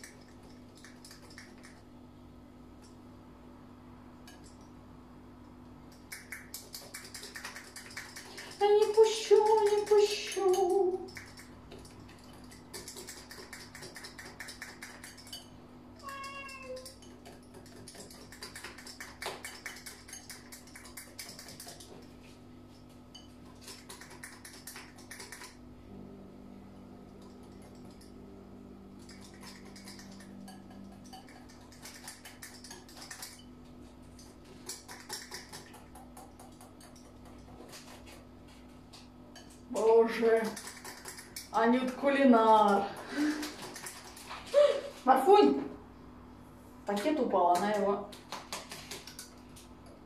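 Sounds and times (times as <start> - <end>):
cat meowing: 16.0 - 16.9
utensil scraping bowl: 40.1 - 42.0.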